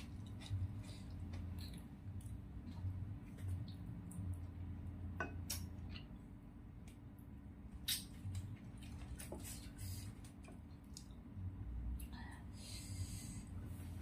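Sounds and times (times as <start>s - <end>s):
wet chewing and mouth noises: 0.0s - 4.8s.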